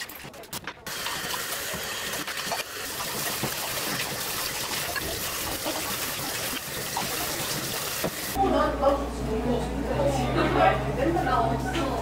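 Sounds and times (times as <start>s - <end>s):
glassware being rinsed: 0.9s - 8.4s
water pouring into steel sink: 0.9s - 8.4s.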